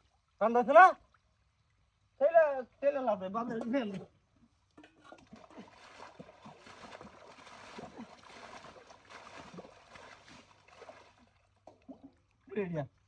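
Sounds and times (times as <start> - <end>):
water splashing from bailing: 5.0 - 12.6.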